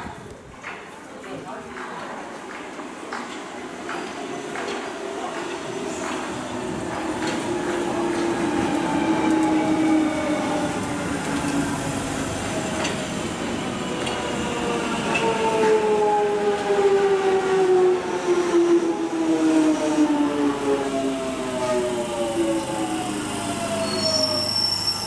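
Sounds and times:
train wheel noise: 0:00.5 - 0:25.0
clicks from rail joints: 0:00.6 - 0:09.6.

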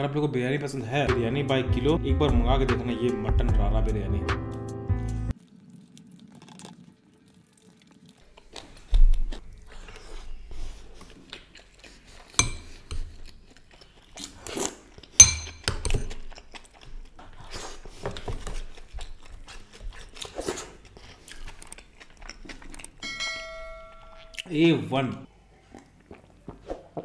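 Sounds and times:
chewing food: 0:05.3 - 0:15.2, 0:15.8 - 0:23.0, 0:25.4 - 0:27.0
metal spoon clinking on plate: 0:15.2 - 0:16.2.

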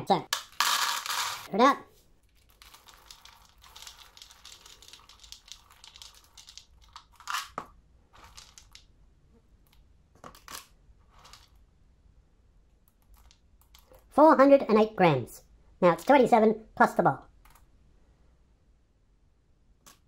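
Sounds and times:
kibble rustling and clattering: 0:02.2 - 0:08.8
kibble rattling into plastic bowl: 0:02.3 - 0:07.6, 0:08.2 - 0:08.8.

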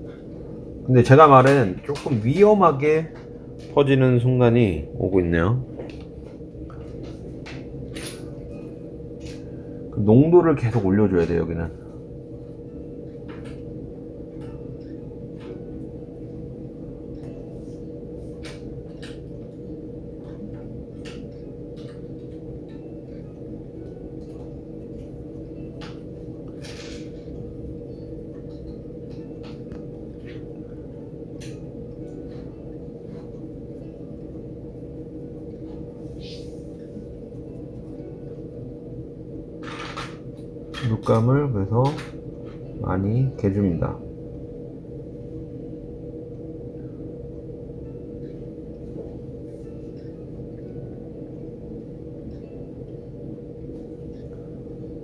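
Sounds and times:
low electrical hum: 0:00.0 - 0:55.0.

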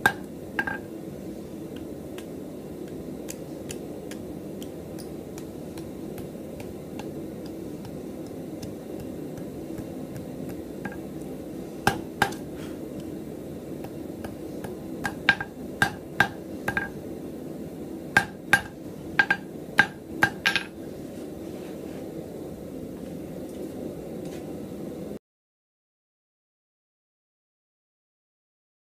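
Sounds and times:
hammer striking steel on anvil: 0:00.0 - 0:00.9, 0:11.9 - 0:12.5, 0:15.0 - 0:17.0, 0:18.2 - 0:20.7
steady low hum: 0:00.0 - 0:25.2.

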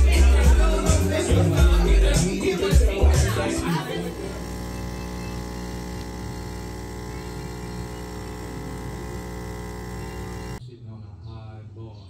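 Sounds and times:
coffee machine pump humming: 0:00.2 - 0:10.6
coffee streaming into cups: 0:03.0 - 0:10.6.

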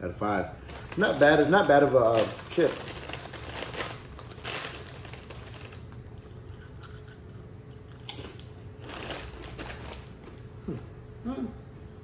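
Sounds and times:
faint steady hum: 0:00.0 - 0:12.0
chip bag crinkling: 0:00.6 - 0:07.3, 0:08.0 - 0:10.6.

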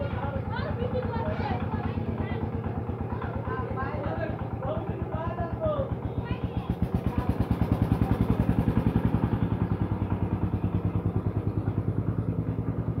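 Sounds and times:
small engine chugging: 0:00.0 - 0:13.0.

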